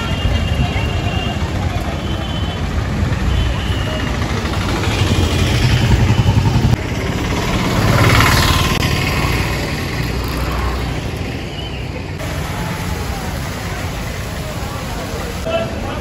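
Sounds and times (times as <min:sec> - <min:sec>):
road traffic noise: 0:00.0 - 0:16.0
vehicle engine running: 0:02.7 - 0:11.2
loud vehicle passing: 0:03.9 - 0:13.3.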